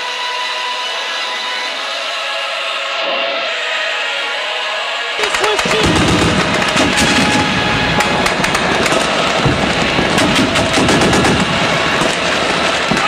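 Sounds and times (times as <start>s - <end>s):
rapid machine gun fire: 5.2s - 13.0s.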